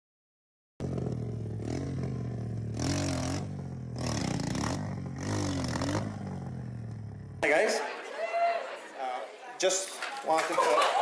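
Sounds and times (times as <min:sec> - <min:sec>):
dirt bike engine revving: 0:00.8 - 0:07.4.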